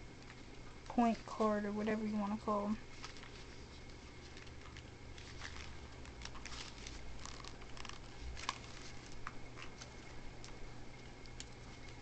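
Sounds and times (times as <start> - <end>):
packaging rustling: 2.8 - 12.0.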